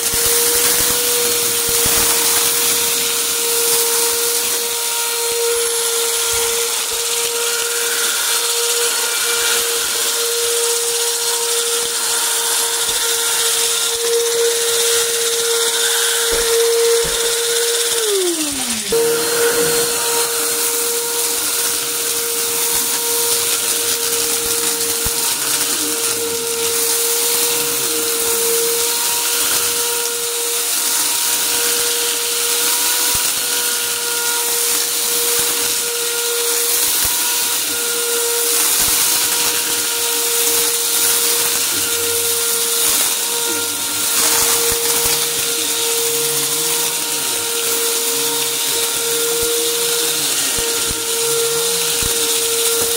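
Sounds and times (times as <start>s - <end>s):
vacuum cleaner motor whine: 0.0s - 52.9s.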